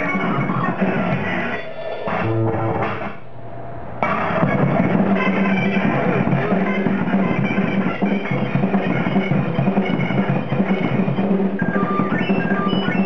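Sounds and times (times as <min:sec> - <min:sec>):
drum kit playing: 0:02.1 - 0:03.2, 0:04.0 - 0:13.0.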